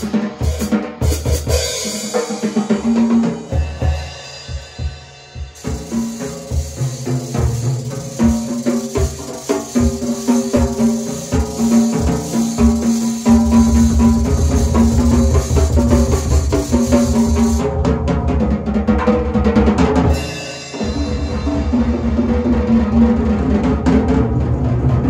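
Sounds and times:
drum kit playing: 0:00.0 - 0:25.0
fast bass drum beats: 0:00.0 - 0:25.0
cymbal wash: 0:03.6 - 0:17.6, 0:20.1 - 0:22.4.

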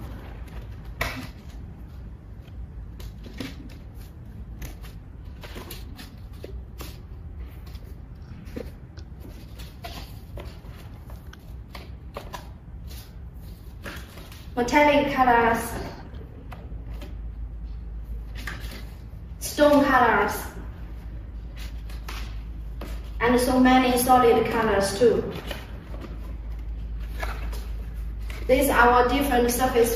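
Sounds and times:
pages turning: 0:25.3 - 0:28.5.

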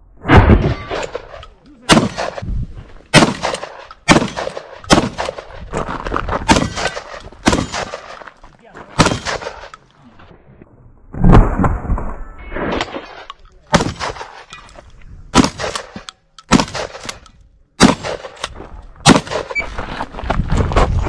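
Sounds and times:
gunshots with echo: 0:00.3 - 0:02.5, 0:03.1 - 0:05.6, 0:06.5 - 0:08.2, 0:09.0 - 0:09.7, 0:12.7 - 0:14.5, 0:15.3 - 0:17.2, 0:17.8 - 0:19.6.

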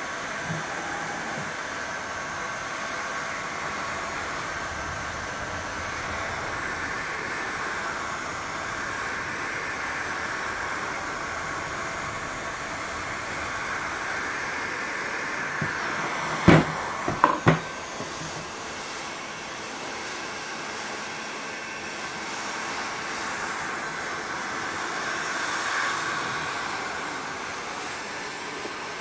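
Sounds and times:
heat gun fan blowing: 0:00.0 - 0:29.0
plastic housing knocking on wood: 0:16.4 - 0:18.2.

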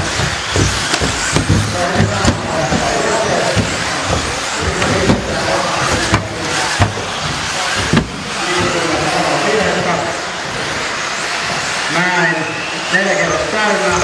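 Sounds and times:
rc cars landing knocks: 0:00.0 - 0:09.2
rc car motors and tyres hissing: 0:00.0 - 0:14.0.

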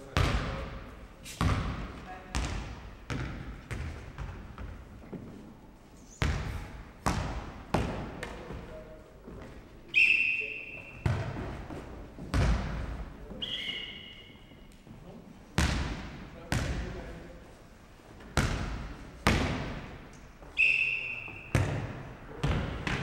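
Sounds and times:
ball bouncing on wooden floor: 0:01.4 - 0:05.2, 0:11.0 - 0:13.0.

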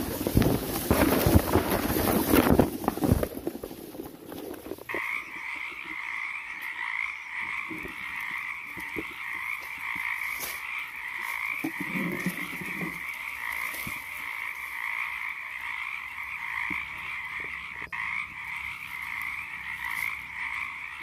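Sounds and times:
footsteps rustling dry reeds: 0:00.0 - 0:21.0
frogs chorus: 0:04.4 - 0:21.0.

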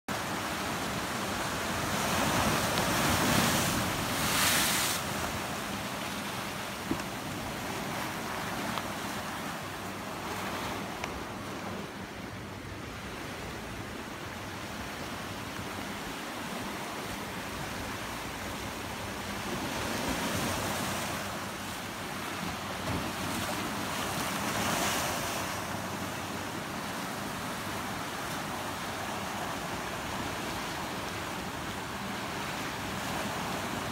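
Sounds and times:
surf breaking over rocks: 0:01.1 - 0:11.7.

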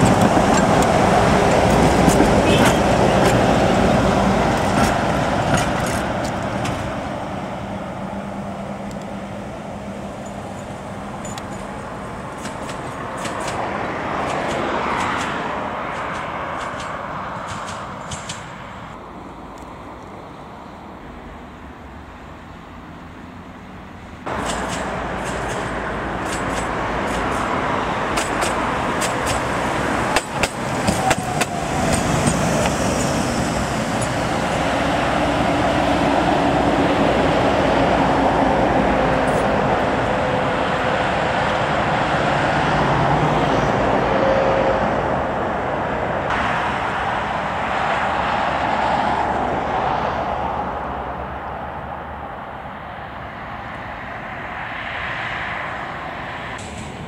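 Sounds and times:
tram clicks and knocks: 0:00.0 - 0:07.1, 0:10.1 - 0:18.8, 0:24.3 - 0:40.1, 0:56.6 - 0:57.0
tram rumble: 0:00.0 - 0:57.0.

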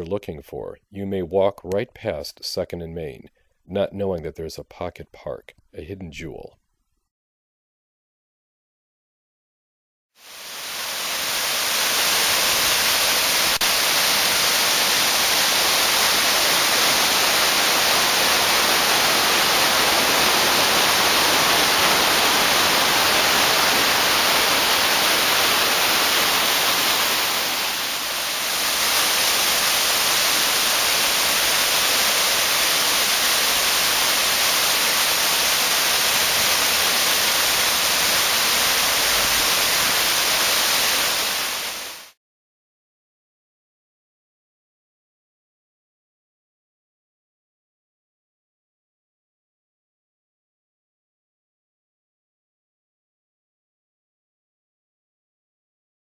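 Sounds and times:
waterfall rushing over boulders: 0:10.2 - 0:42.2.

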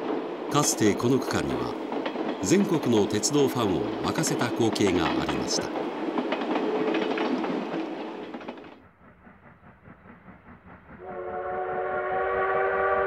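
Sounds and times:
steam locomotive: 0:00.0 - 0:13.0
train running on rails: 0:00.0 - 0:13.0
steam whistle: 0:11.0 - 0:13.0.

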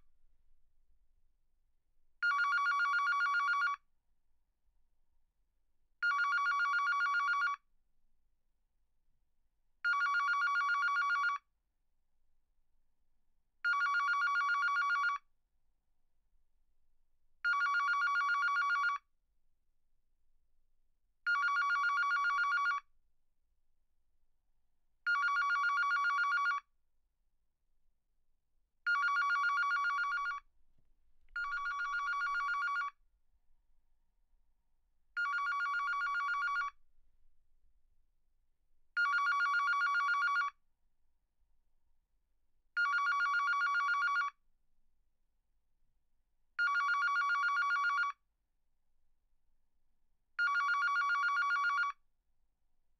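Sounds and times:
warbling electronic phone ring: 0:28.9 - 0:30.4, 0:31.4 - 0:32.9, 0:35.2 - 0:36.8, 0:39.0 - 0:40.6, 0:42.8 - 0:44.4, 0:46.6 - 0:48.2, 0:50.4 - 0:52.0.

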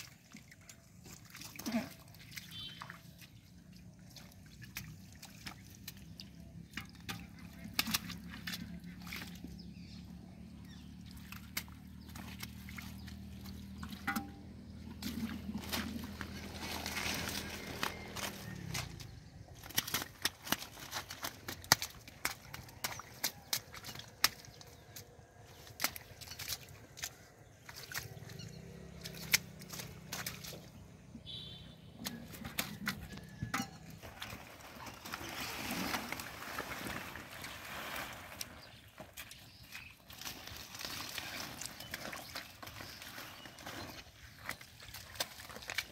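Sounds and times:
rustling in wet grass and mud: 0:00.0 - 0:45.9
low engine-like hum: 0:06.2 - 0:19.7, 0:26.8 - 0:34.2
plants rustling being pulled: 0:14.8 - 0:22.8, 0:34.0 - 0:45.9
fish flapping wet slaps: 0:19.6 - 0:25.0.

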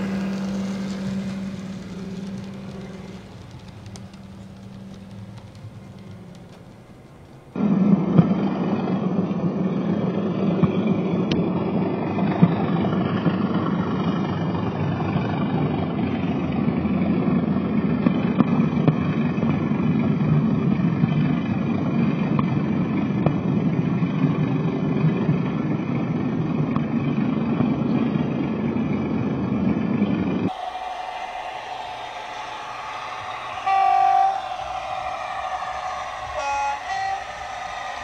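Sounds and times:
model train diesel engine sound: 0:00.0 - 0:07.6, 0:30.5 - 0:38.0.

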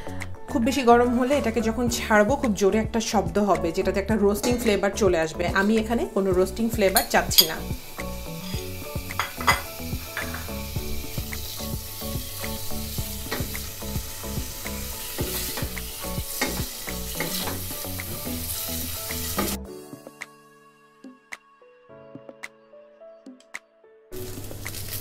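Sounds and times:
chicken sizzling in a pan: 0:06.2 - 0:19.6, 0:24.2 - 0:25.0.

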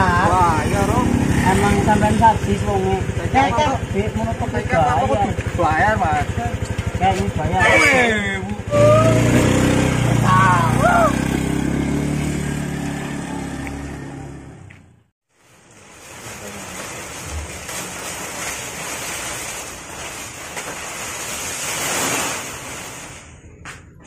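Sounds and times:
motor scooter engine pulling away: 0:00.0 - 0:15.0
dry leaves rustling: 0:15.3 - 0:23.3.

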